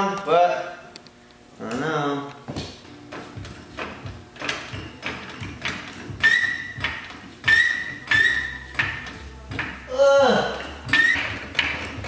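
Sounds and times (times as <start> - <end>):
floor jack pumping clicks: 2.6 - 9.9, 10.5 - 12.0.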